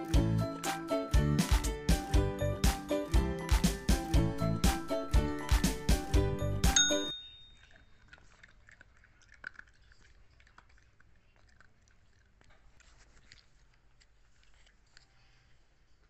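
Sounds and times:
puppy chewing treat crunches: 0:07.5 - 0:16.0.

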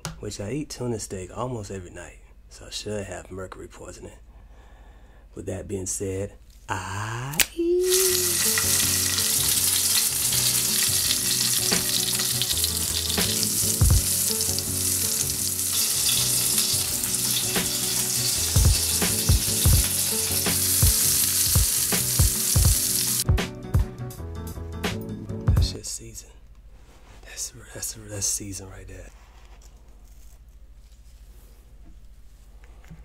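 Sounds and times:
fish sizzling in butter: 0:07.9 - 0:23.2.

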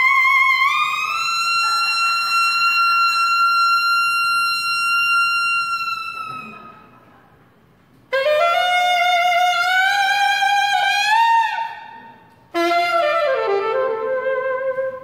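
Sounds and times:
saxophone solo: 0:00.0 - 0:06.8, 0:08.1 - 0:15.0.

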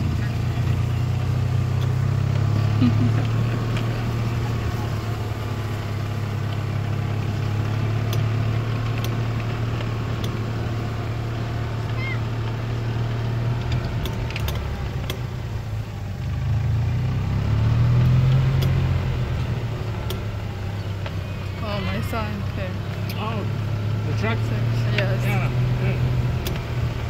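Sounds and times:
vehicle engine running: 0:00.0 - 0:27.0
rattles and clicks: 0:11.8 - 0:16.6, 0:18.0 - 0:23.4.

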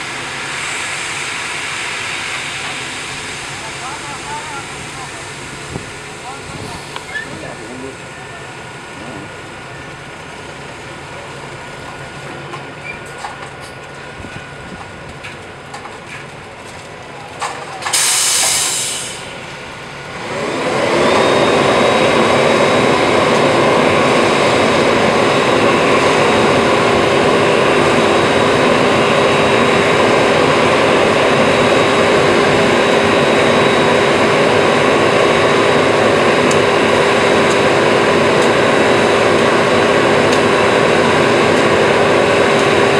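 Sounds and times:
loud air hiss: 0:00.0 - 0:07.9, 0:17.8 - 0:19.5
diesel engine revving: 0:17.9 - 0:42.9.

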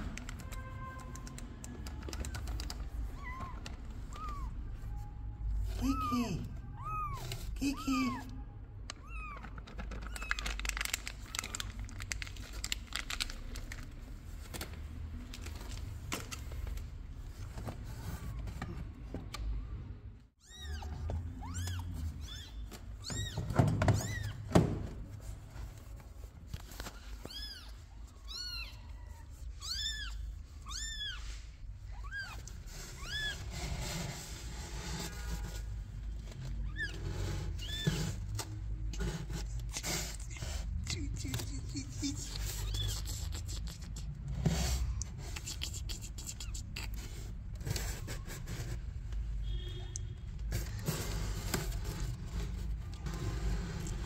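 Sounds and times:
kittens mewing: 0:01.9 - 0:10.6, 0:39.2 - 0:47.7.

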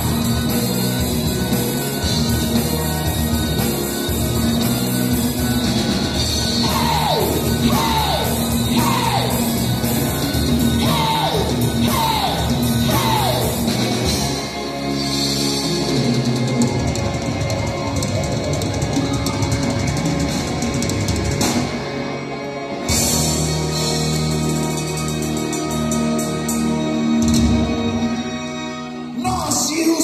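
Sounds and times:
hard rock band playing loudly: 0:00.0 - 0:28.1
falling guitar wails: 0:05.8 - 0:14.3.

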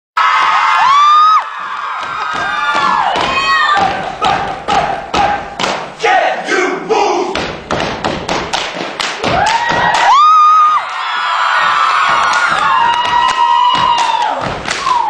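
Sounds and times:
audience shouting and whooping: 0:00.2 - 0:04.5, 0:09.2 - 0:15.0
dancers stomping and clapping: 0:00.3 - 0:06.0, 0:07.3 - 0:10.9, 0:11.5 - 0:15.0.

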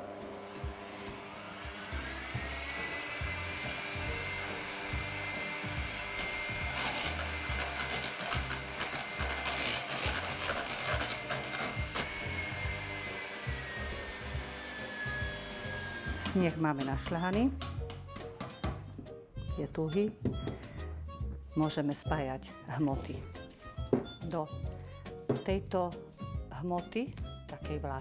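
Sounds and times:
electric hand mixer whining: 0:00.0 - 0:17.3.

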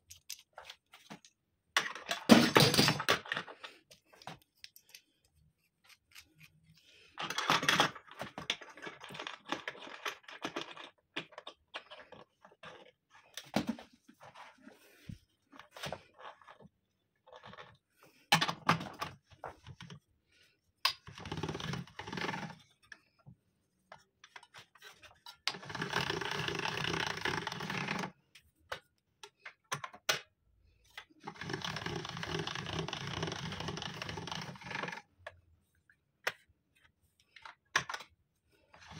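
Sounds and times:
pasta machine rattling clatter: 0:31.2 - 0:35.0.

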